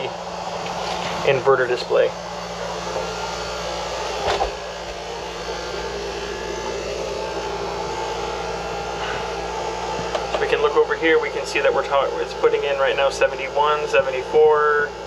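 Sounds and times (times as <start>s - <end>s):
air conditioner air rushing: 0.0s - 15.0s
low steady hum: 0.0s - 15.0s.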